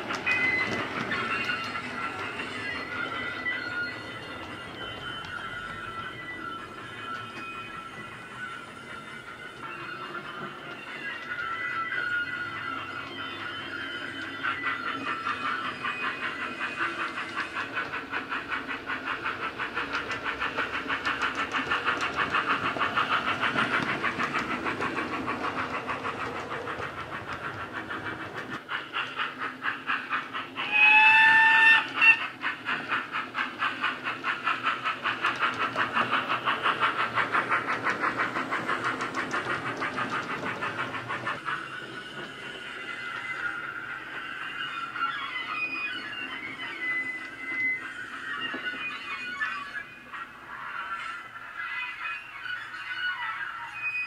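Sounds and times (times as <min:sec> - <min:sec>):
steam locomotive exhaust chuffs: 0:00.0 - 0:51.6
steam whistle blast: 0:30.6 - 0:32.2.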